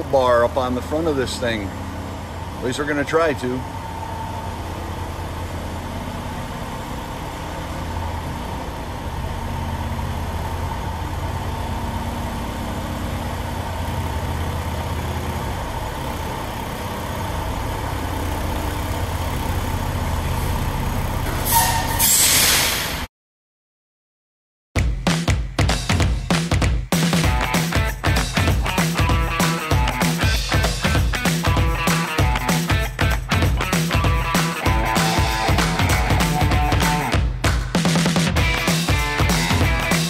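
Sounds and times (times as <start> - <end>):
diesel truck engine idling: 0.0 - 22.0
air brakes hissing: 21.3 - 23.1.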